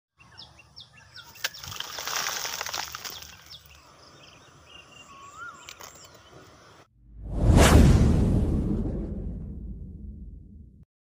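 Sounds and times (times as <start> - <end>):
birds chirping: 0.1 - 6.9.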